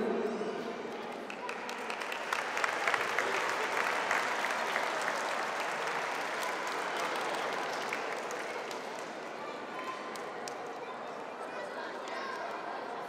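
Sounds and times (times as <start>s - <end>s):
audience clapping: 0.9s - 10.8s.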